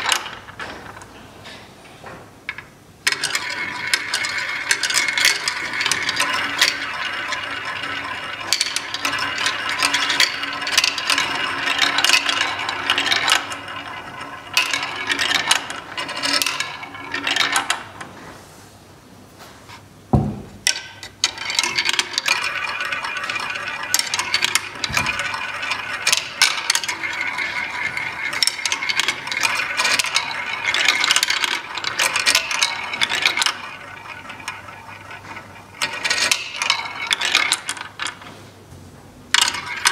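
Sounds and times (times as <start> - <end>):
balls clattering down toy tracks: 2.5 - 18.0, 20.7 - 38.3, 39.3 - 39.9
heavy knock: 20.1 - 20.6.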